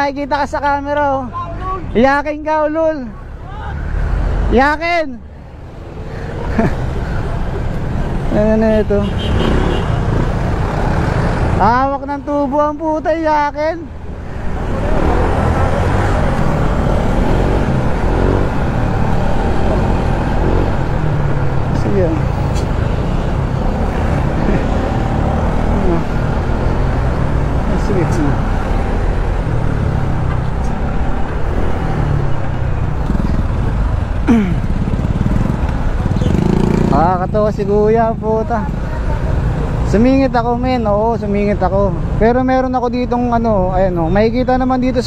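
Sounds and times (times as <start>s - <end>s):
road and wind noise: 0.0s - 45.0s
motorcycle engine running: 34.4s - 37.5s.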